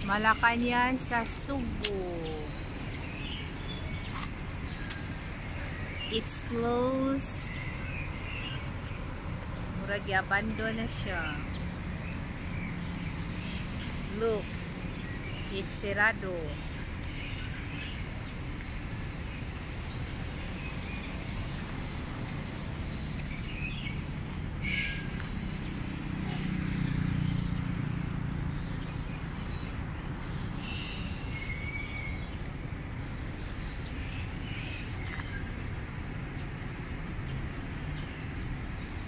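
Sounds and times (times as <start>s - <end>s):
low traffic rumble: 0.0s - 39.0s
vehicle passing: 24.8s - 29.0s.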